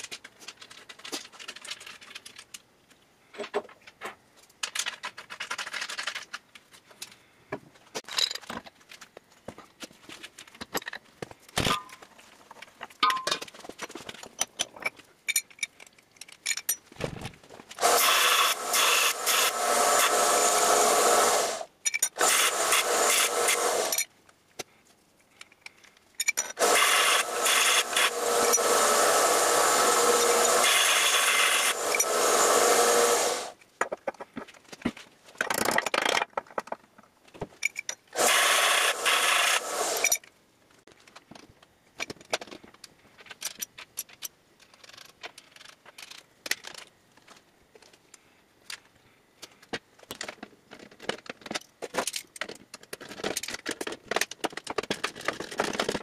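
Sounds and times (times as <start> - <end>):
metal parts clicking: 14.1 - 17.4, 21.8 - 22.5, 23.5 - 24.1, 25.4 - 28.8, 37.6 - 40.3
belt sander grinding metal pipe: 17.8 - 24.0, 26.6 - 33.6, 38.2 - 40.2.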